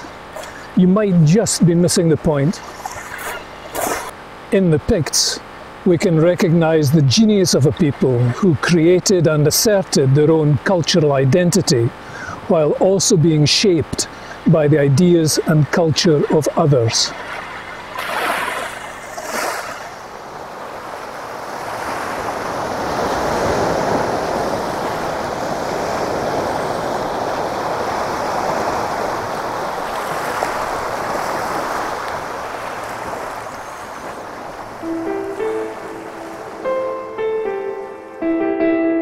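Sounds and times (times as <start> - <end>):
waves breaking on pebble beach: 16.4 - 35.0.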